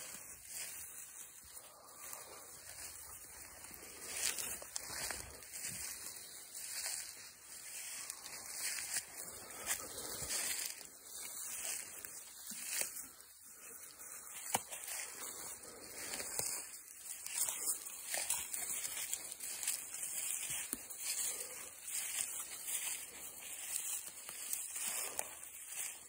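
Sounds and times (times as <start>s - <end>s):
footsteps crunching dry leaves: 0.0s - 26.0s.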